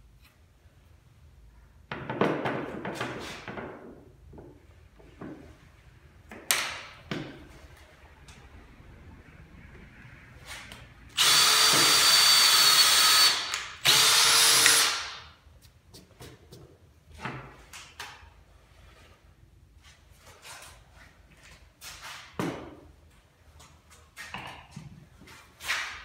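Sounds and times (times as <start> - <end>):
power tool motor whining: 11.2 - 15.1.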